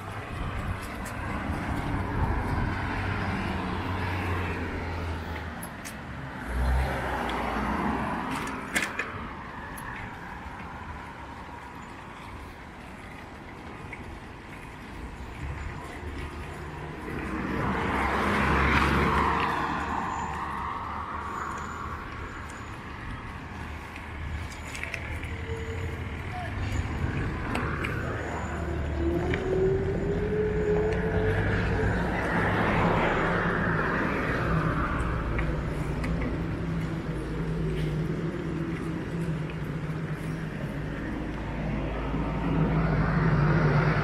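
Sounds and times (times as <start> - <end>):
cars passing: 0.0 - 44.0.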